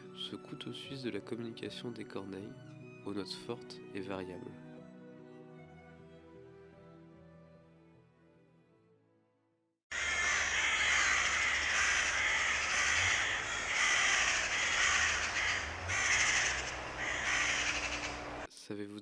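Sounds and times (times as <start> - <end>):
crows cawing harshly: 9.9 - 18.5.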